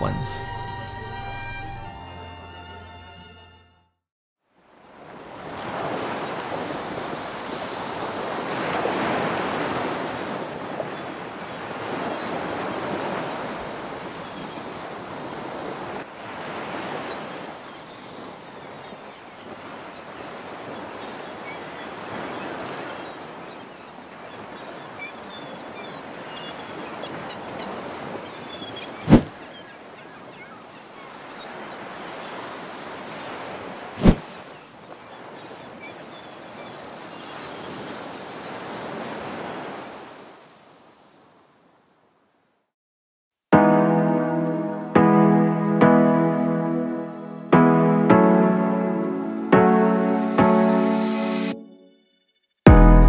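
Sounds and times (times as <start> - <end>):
ocean surf washing against rocks: 5.0 - 18.6.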